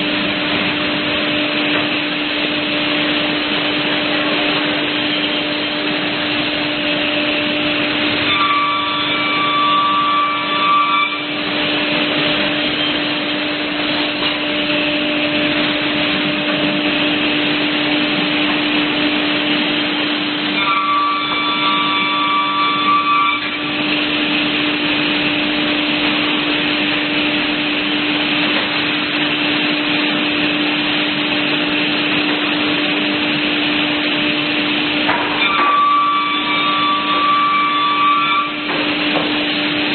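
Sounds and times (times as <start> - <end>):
panel saw machine hum: 0.0 - 39.9
saw cutting whine: 2.2 - 26.5, 35.3 - 39.1.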